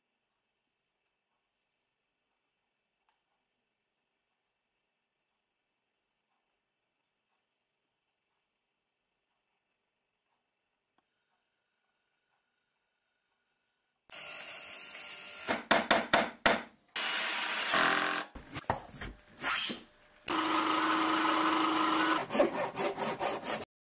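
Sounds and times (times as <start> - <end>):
power tools running: 17.0 - 18.4, 20.3 - 23.3
sawing wood: 19.4 - 23.7
machine humming: 20.3 - 22.3.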